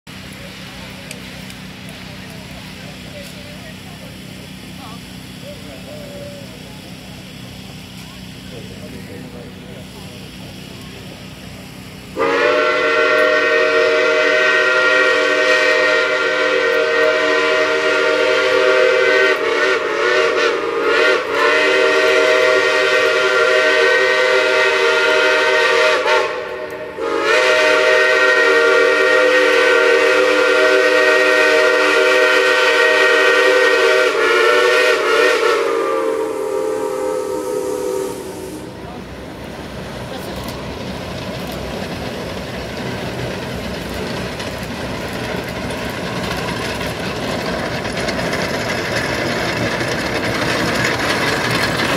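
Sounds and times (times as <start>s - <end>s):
steam locomotive chime whistle: 12.1s - 39.0s.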